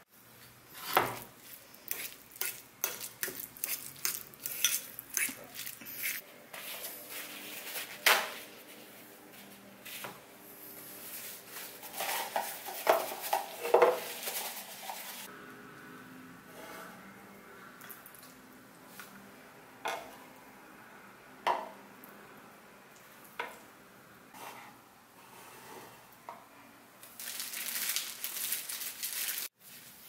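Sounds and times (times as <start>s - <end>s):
fork scraping a ceramic bowl: 1.9s - 6.2s.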